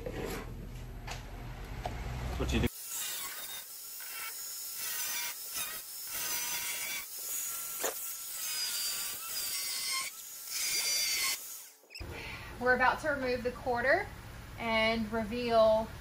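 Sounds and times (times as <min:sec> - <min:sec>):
angle grinder cutting sheet steel: 0:02.7 - 0:11.8.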